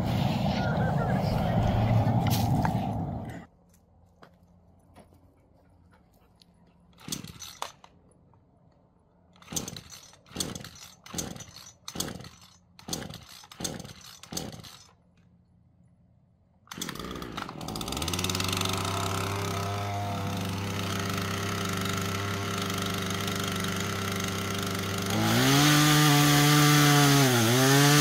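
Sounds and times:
small engine running: 0:16.7 - 0:28.0.

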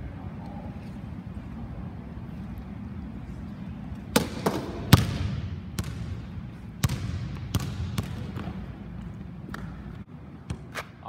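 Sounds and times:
basketball bouncing on hardwood floor: 0:04.2 - 0:08.7.

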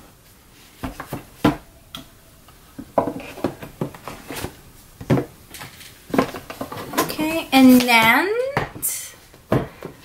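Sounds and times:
rustling: 0:02.4 - 0:08.0.

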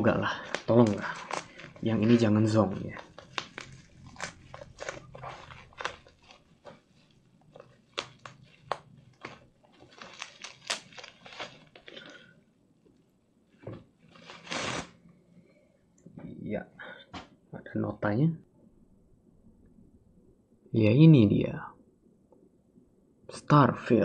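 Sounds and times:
cardboard packaging crackling: 0:00.2 - 0:12.4, 0:14.0 - 0:15.0.

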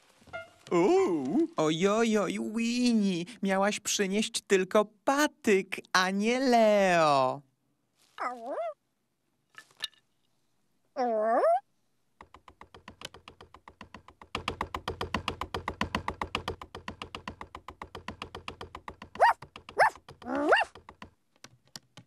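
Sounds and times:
cartoon woodpecker tapping: 0:12.2 - 0:22.0.

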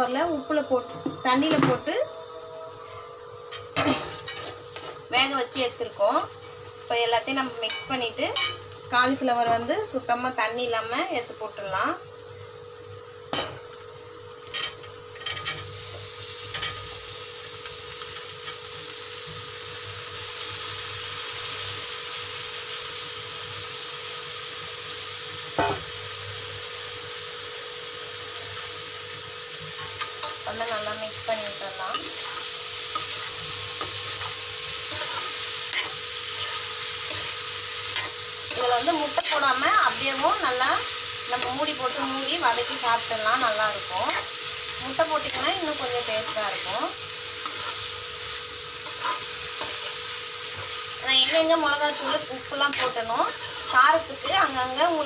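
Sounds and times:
vegetables sizzling in pan: 0:00.0 - 0:55.0
metal spoon scraping and clinking: 0:03.5 - 0:05.6, 0:14.5 - 0:15.7, 0:31.9 - 0:42.8, 0:44.1 - 0:44.3, 0:47.4 - 0:47.8, 0:48.8 - 0:50.0, 0:50.6 - 0:54.6.

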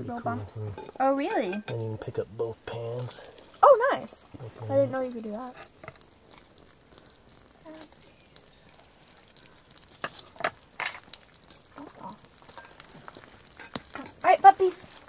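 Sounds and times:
pan sizzling faintly: 0:00.0 - 0:15.0
fork clicking and scraping in pan: 0:09.9 - 0:11.7, 0:12.4 - 0:14.2.

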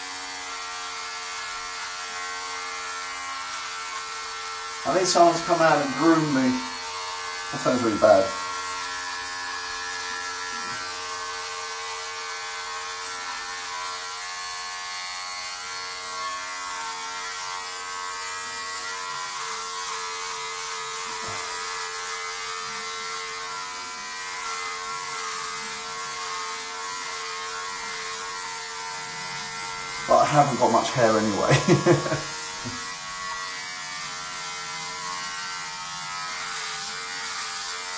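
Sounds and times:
electric hair trimmer buzzing: 0:00.0 - 0:37.9.

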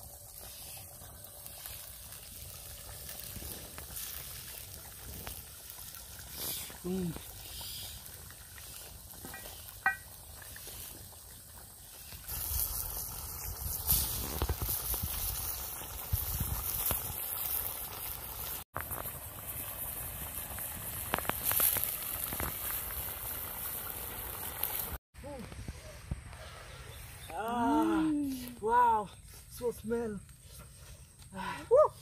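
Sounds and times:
wood fire crackling: 0:00.0 - 0:32.0
spoon knocking against pot: 0:09.3 - 0:10.1.

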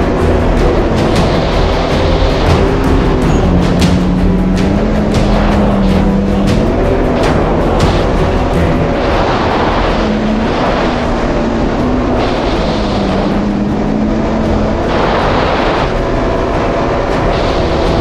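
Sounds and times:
jet ski engine running: 0:00.0 - 0:18.0
rush of wind and water: 0:00.0 - 0:18.0.

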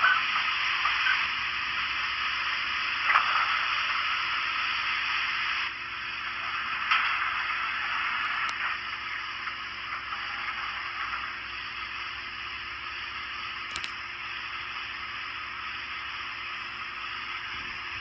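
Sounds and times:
faint steady hum: 0:00.0 - 0:18.0
steam hiss from speaker: 0:00.0 - 0:18.0
small click: 0:13.7 - 0:14.0.

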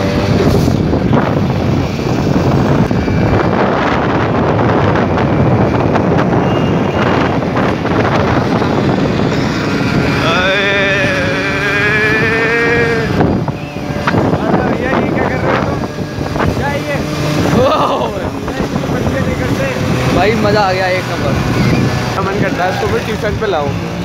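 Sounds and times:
road noise: 0:00.0 - 0:24.0
scooter engine running: 0:00.0 - 0:24.0
wind buffeting microphone: 0:00.0 - 0:24.0
quivering voice-like tone: 0:10.1 - 0:13.2.

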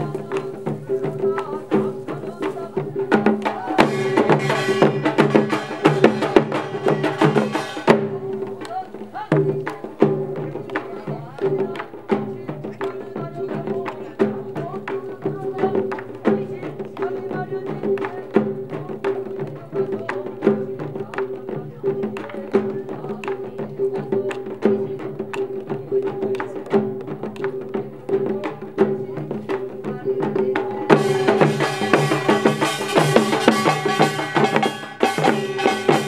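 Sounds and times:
hand drums and percussion: 0:00.0 - 0:36.0.

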